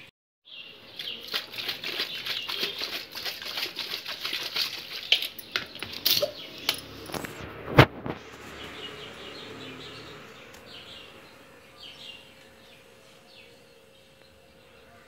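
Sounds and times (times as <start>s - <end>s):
ice rattling in shaken glass: 1.1s - 6.4s.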